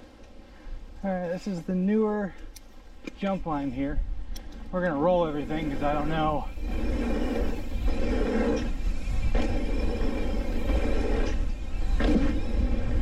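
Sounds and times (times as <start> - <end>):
wind rumbling on microphone: 3.0 - 13.0
tyres rolling over packed dirt: 5.0 - 13.0.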